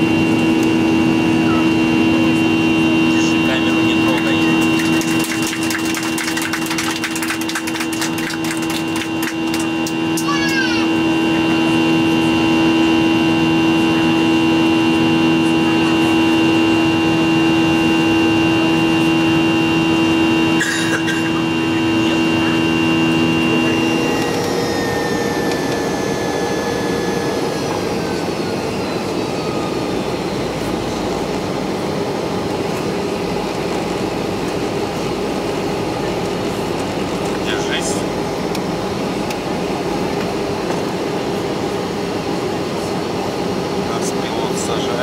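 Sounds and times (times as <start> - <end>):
faint whine falling in pitch: 0.0 - 31.0
jet engines hum in cabin: 0.0 - 45.0.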